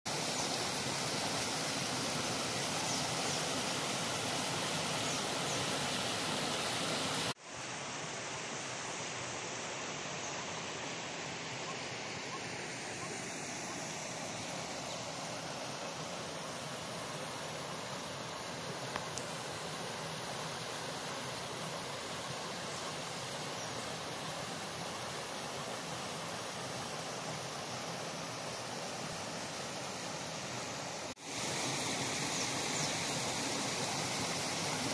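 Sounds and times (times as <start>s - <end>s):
water rushing over rocks: 31.0s - 34.9s.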